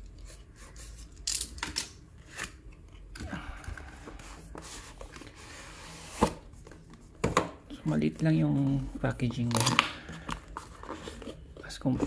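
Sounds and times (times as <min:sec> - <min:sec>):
cardboard sliding and rubbing: 0:04.2 - 0:06.5.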